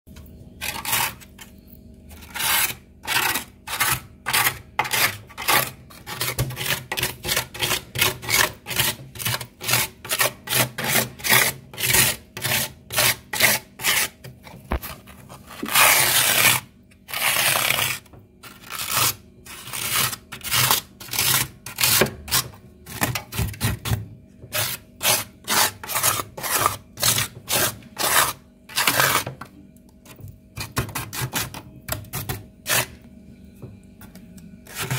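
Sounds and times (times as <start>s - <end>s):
plastic card scraping frost: 2.2s - 22.1s.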